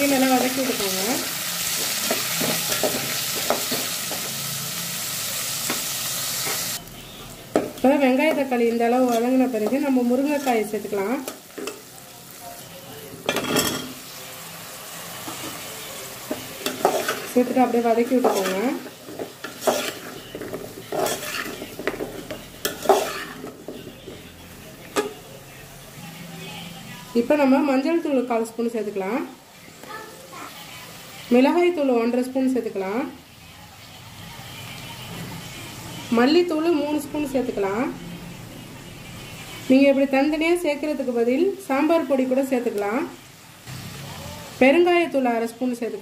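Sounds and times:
onions sizzling in hot oil: 0.0 - 25.9, 27.2 - 33.3, 39.4 - 46.0
metal spoon scraping pot: 18.1 - 23.6.

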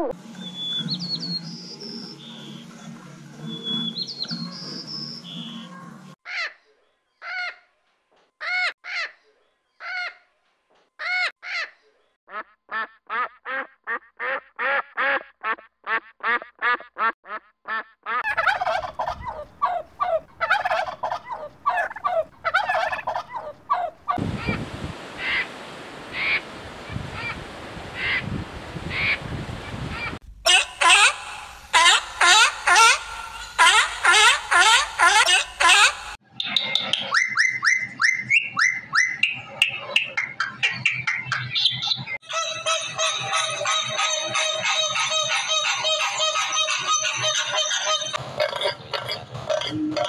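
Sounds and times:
birds calling: 0.1 - 7.6, 18.1 - 50.0
ducks calling: 12.3 - 50.0.

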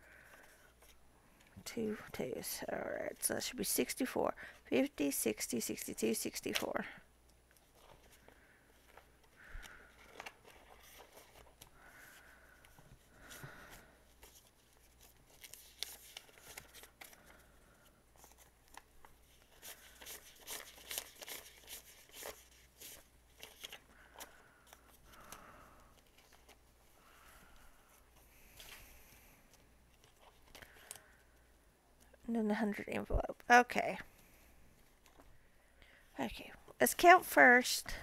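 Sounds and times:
banknotes rustling and flicking: 4.8 - 31.5.

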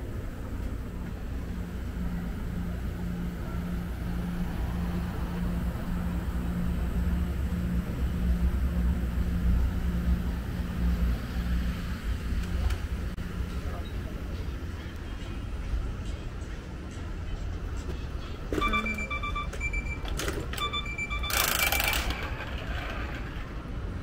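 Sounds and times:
pulsing low hum: 0.0 - 14.4
engine low rumble: 0.0 - 24.0.

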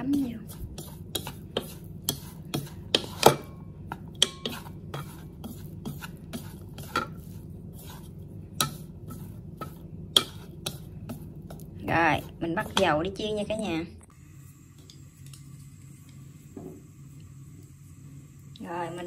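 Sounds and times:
chopsticks tapping a bowl: 0.0 - 7.1, 9.6 - 13.0.

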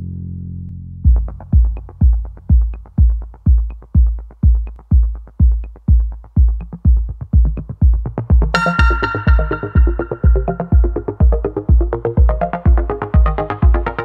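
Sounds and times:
kick drum beat: 1.0 - 14.0
light ticks: 4.6 - 4.9
held bass note: 8.6 - 11.5.

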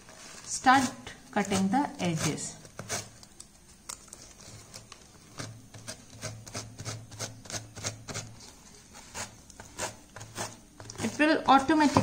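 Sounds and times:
sandpaper rasping on plate rim: 0.6 - 3.1, 5.8 - 12.0.

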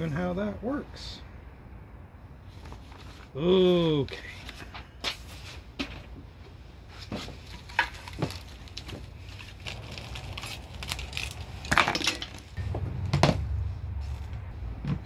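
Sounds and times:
plastic wrap rustling: 7.1 - 12.6
metal parts clinking and knocking: 11.7 - 12.5.

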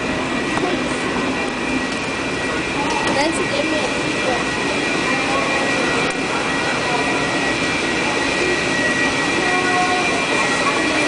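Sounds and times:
high-pitched whine: 0.0 - 11.0.

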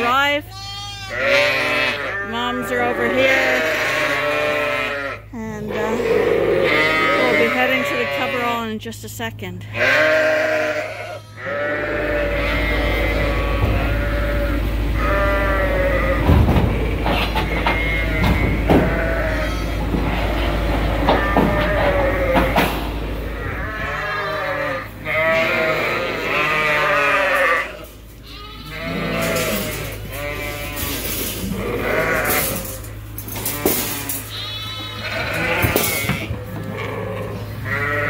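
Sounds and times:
sheep bleating: 0.0 - 8.8, 9.7 - 38.0
low steady hum: 0.0 - 38.0.

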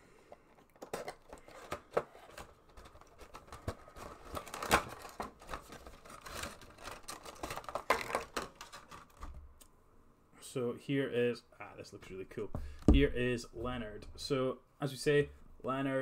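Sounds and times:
cardboard and plastic rustling: 0.3 - 9.5.

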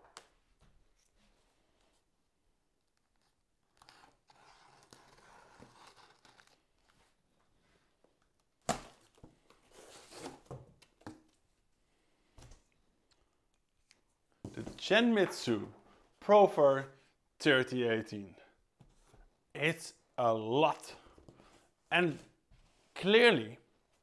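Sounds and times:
cardboard rustling and scraping: 9.6 - 10.7.

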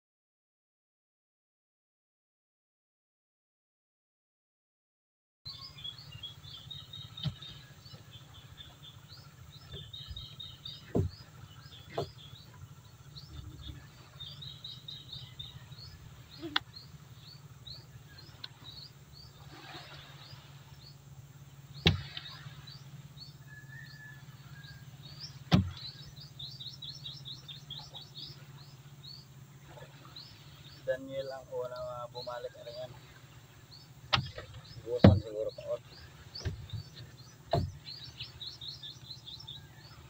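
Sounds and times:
small birds chirping: 5.5 - 40.0
steady low hum: 5.5 - 40.0
net weights knocking on hull: 10.7 - 12.2, 25.4 - 25.8, 34.1 - 35.4, 36.4 - 37.9.

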